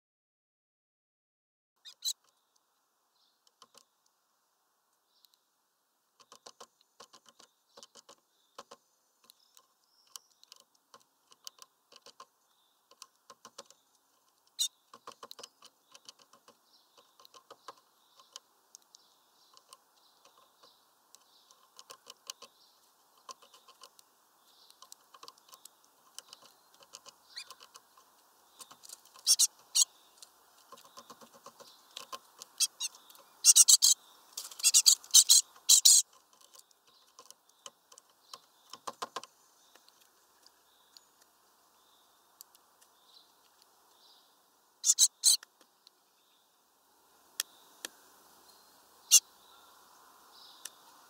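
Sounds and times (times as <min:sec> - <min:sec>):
bird pecking on wooden twig: 0:06.2 - 0:33.5, 0:34.3 - 0:41.4.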